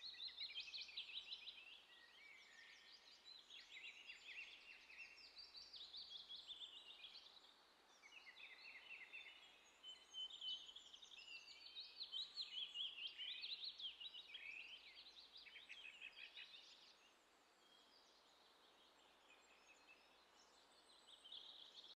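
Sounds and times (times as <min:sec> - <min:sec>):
small birds chirping and trilling: 0:00.0 - 0:22.0.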